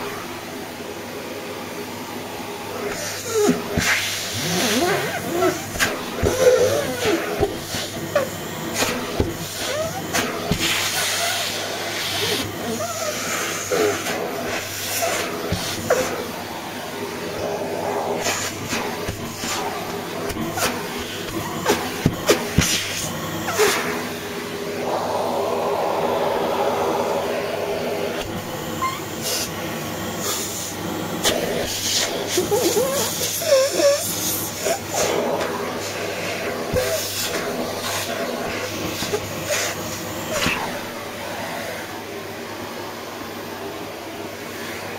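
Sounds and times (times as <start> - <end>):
handheld vacuum cleaner running: 0.0 - 44.9
vacuum nozzle knocking: 18.2 - 23.9.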